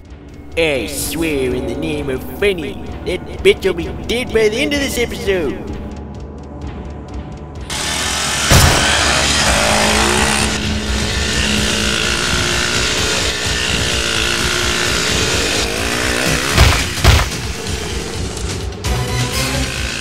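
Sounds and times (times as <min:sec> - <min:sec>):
sharp bangs: 0:07.7 - 0:18.6
dirt bike engine revving: 0:07.7 - 0:20.0.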